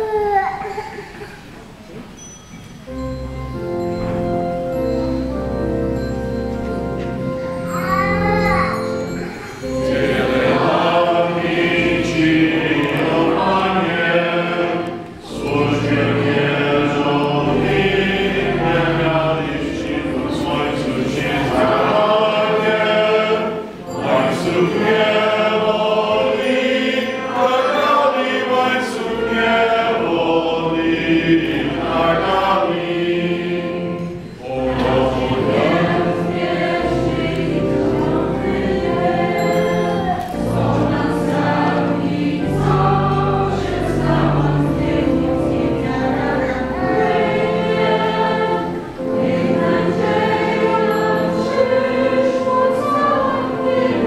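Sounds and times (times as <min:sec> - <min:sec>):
choir singing a hymn: 0:02.9 - 0:54.0.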